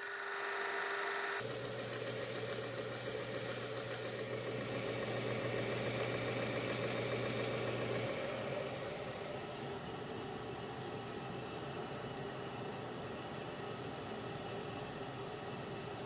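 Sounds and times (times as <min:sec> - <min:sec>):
belt grinder motor hum: 0:00.0 - 0:08.5
sanding hiss: 0:01.4 - 0:04.3.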